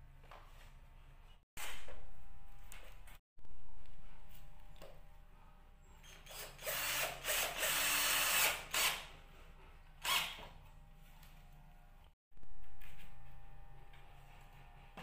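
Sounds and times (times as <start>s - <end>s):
power drill running: 6.2s - 9.1s, 10.0s - 10.4s.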